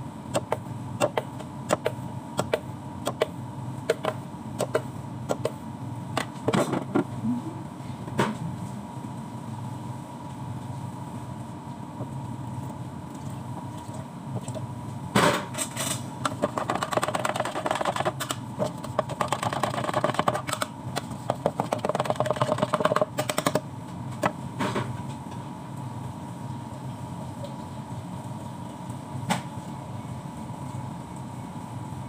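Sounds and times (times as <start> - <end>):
steady hum: 0.0 - 32.0.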